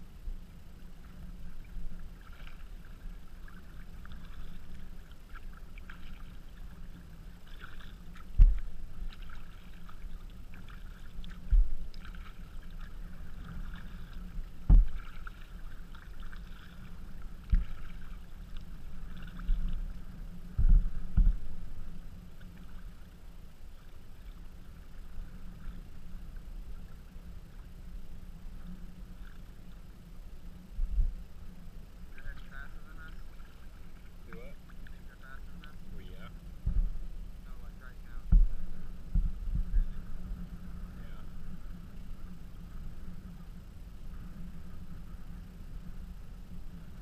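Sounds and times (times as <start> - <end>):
water lapping and splashing: 0.0 - 47.0
dull thump against hull: 8.2 - 9.4, 11.4 - 12.4, 14.6 - 15.4, 17.5 - 18.1, 20.5 - 21.6, 36.6 - 37.0, 38.2 - 39.9.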